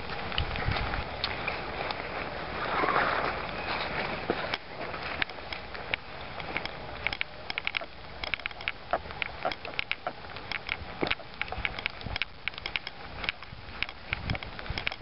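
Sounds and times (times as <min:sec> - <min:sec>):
branches rustling: 0:00.0 - 0:15.0
twigs crackling and snapping: 0:04.4 - 0:15.0.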